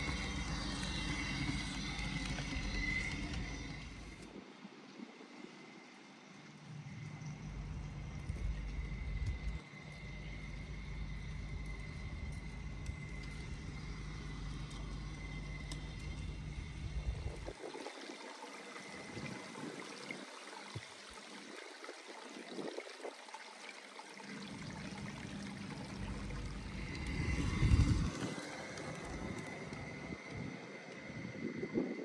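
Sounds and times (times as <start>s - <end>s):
model locomotive rumbling on track: 0.0s - 4.3s, 6.9s - 17.6s, 24.3s - 32.0s
water trickling: 0.0s - 32.0s.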